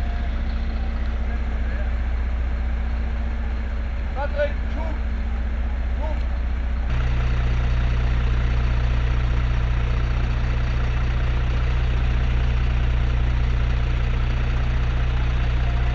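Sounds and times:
large engine idling: 0.0s - 15.9s.

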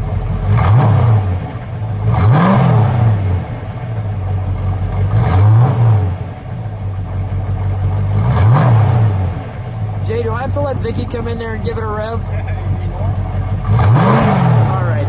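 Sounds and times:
car engine revving from idle: 0.0s - 15.0s.

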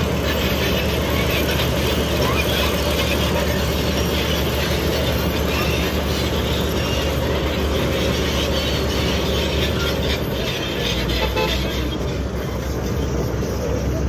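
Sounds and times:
bulldozer diesel engine running: 0.0s - 14.0s.

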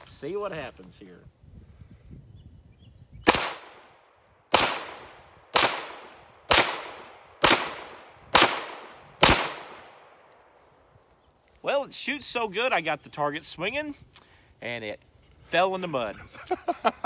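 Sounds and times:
pistol shots: 3.3s - 10.2s.

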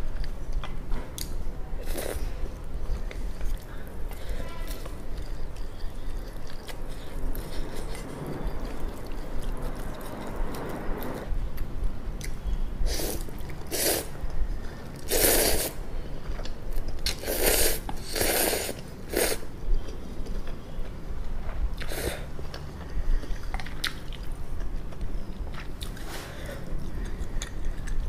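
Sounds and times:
wet chewing: 4.7s - 11.2s
loud noodle slurps: 12.9s - 14.1s, 15.0s - 15.8s, 17.2s - 19.4s.

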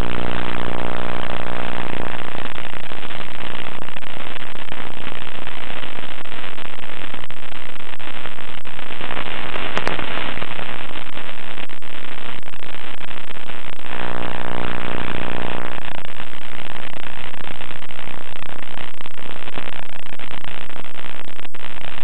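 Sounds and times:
steady buzz: 0.0s - 2.6s, 13.8s - 16.1s
brief crackle: 0.0s - 22.0s
loud static hiss: 0.0s - 22.0s.

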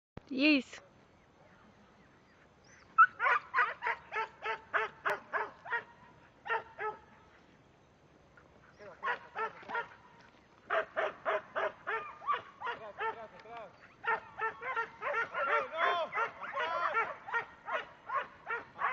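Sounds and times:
dog barking in quick runs: 3.0s - 7.1s, 9.0s - 18.9s.

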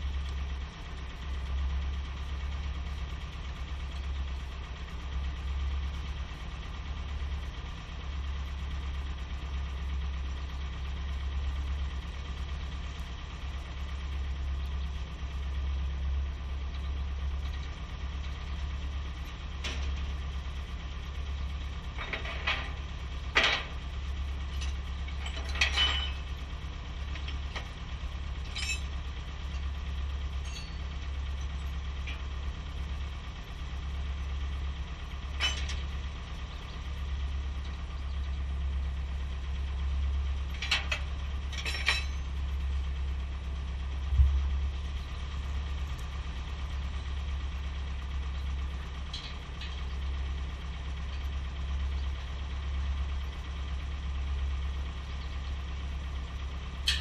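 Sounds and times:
heavy equipment engine idling: 0.0s - 57.0s
sharp metal clanks: 24.6s - 26.3s, 28.4s - 29.0s, 30.4s - 30.9s, 40.6s - 42.4s.

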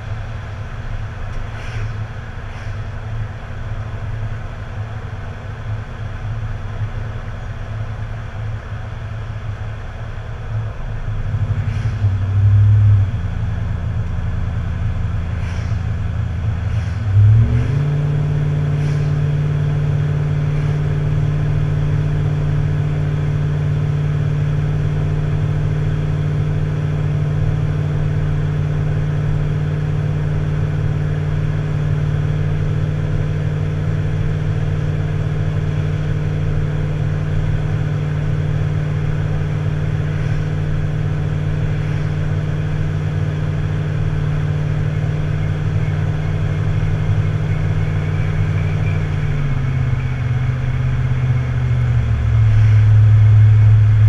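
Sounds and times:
vehicle engine running: 0.0s - 54.0s.

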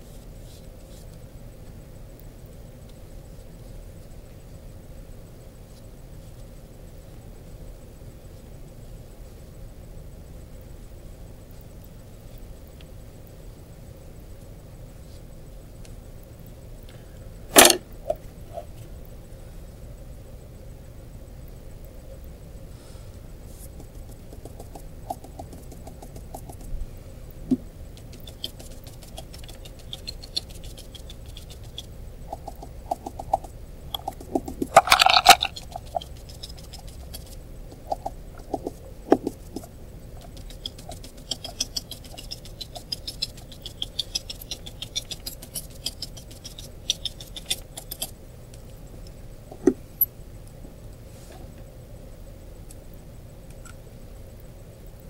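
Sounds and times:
brush scratching on paper: 28.0s - 34.4s, 35.4s - 48.1s.

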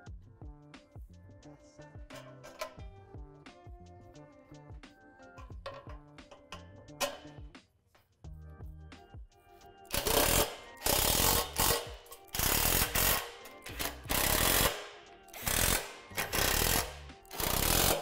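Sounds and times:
cordless drill driving bolts: 9.9s - 18.0s.

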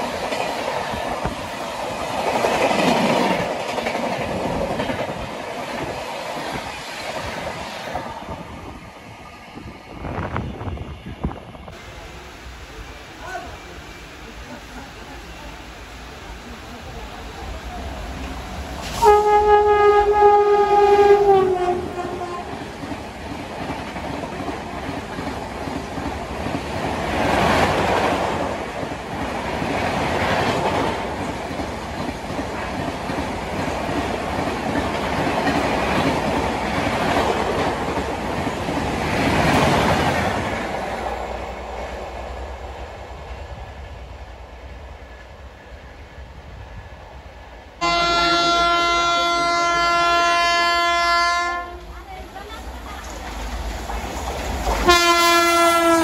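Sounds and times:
train wheels rushing on rails: 0.0s - 56.0s
train horn: 18.9s - 22.7s, 47.8s - 51.9s, 54.8s - 56.0s.

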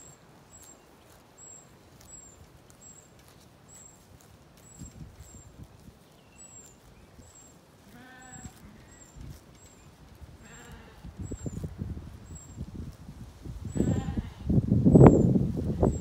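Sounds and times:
sheep bleating: 7.8s - 9.1s, 10.4s - 11.2s, 13.7s - 14.5s.

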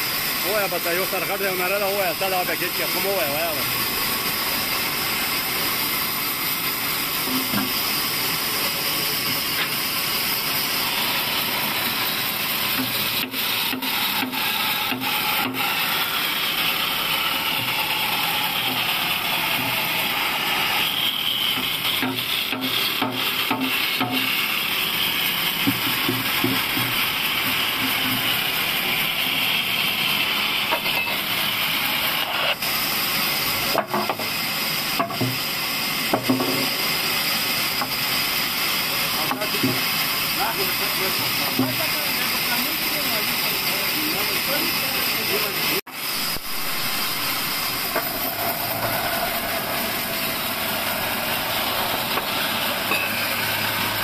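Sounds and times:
band saw cutting wood: 0.0s - 54.0s
faint high whine: 46.1s - 54.0s.

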